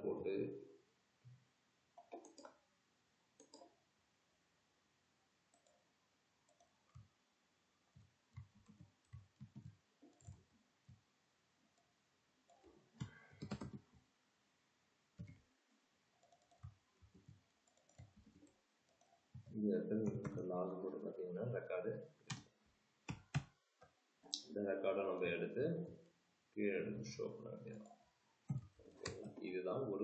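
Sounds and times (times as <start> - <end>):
computer keyboard keystrokes: 13.0 - 13.8.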